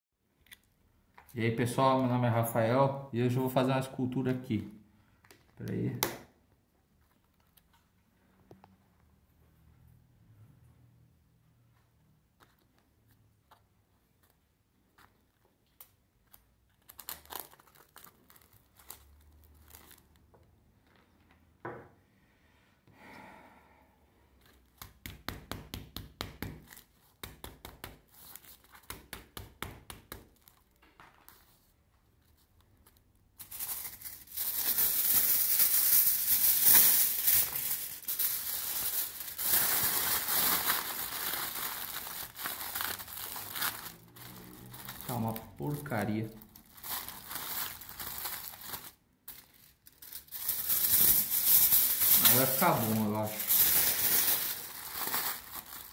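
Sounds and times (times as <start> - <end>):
aluminium foil crinkling: 14.2 - 20.5, 32.4 - 55.9.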